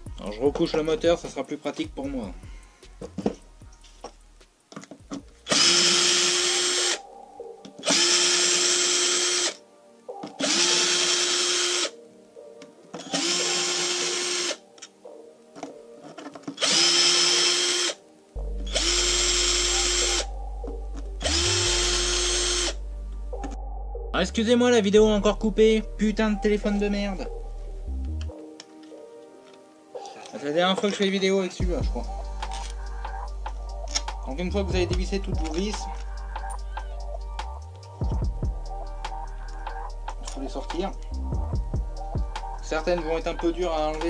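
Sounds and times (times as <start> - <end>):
electric drill whine: 5.5 - 7.0, 7.8 - 9.6, 10.4 - 12.0, 13.0 - 14.6, 16.6 - 18.0, 18.7 - 20.3, 21.2 - 22.8
clicks of bit and screws: 32.4 - 32.8.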